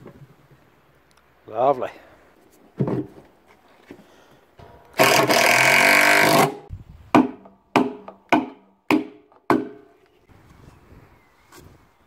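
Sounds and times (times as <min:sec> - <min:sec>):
sharp ringing knocks: 0:04.6 - 0:06.5.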